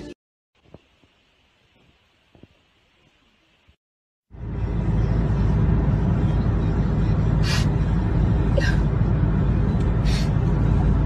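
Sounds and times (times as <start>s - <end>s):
car cabin road noise: 4.3s - 11.0s.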